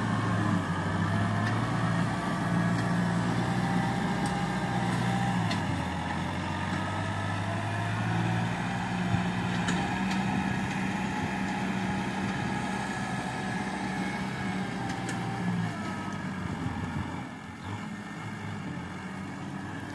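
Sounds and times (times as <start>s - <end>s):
tractor diesel engine under load: 0.0s - 19.9s.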